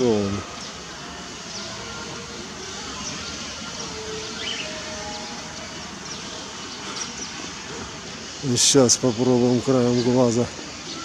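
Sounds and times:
background hum of distant activity: 0:00.0 - 0:11.0
faint high chirp: 0:02.7 - 0:07.4.

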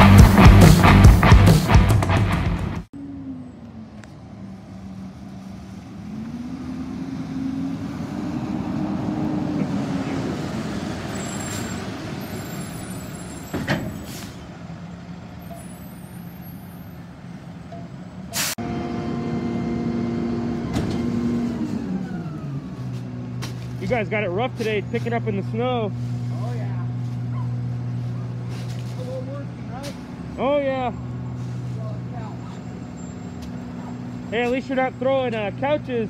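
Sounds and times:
air brake pops: 0:13.5 - 0:14.4, 0:18.3 - 0:18.6
truck diesel engine running: 0:18.6 - 0:36.0.

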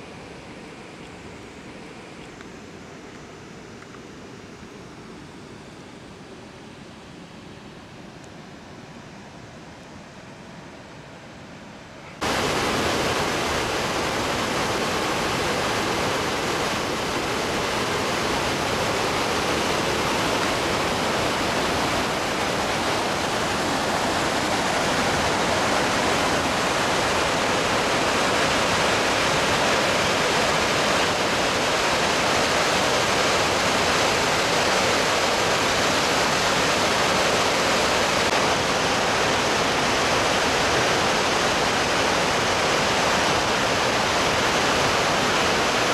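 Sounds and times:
waterfall rushing over rocks: 0:12.2 - 0:45.9.

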